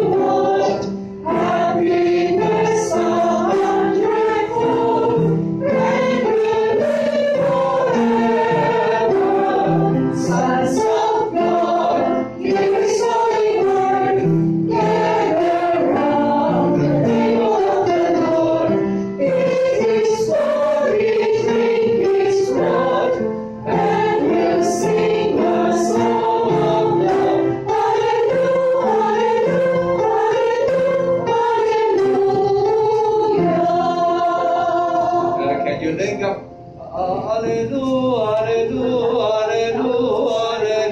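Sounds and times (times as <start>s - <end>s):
choir singing: 0.0s - 36.0s, 36.9s - 40.9s.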